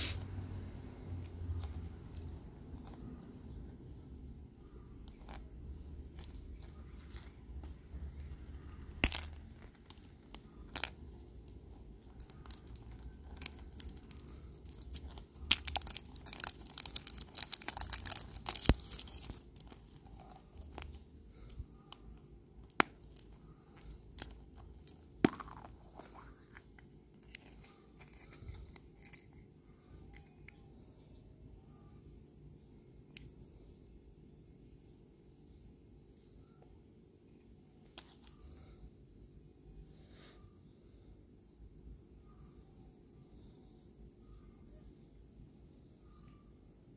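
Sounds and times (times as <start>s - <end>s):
plastic film tearing and crinkling: 12.1s - 20.9s
plastic capsule clicks and taps: 22.6s - 27.5s.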